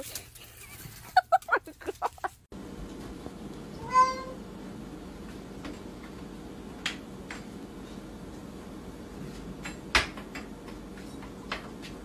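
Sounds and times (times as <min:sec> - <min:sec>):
cat meowing: 0:03.8 - 0:04.4.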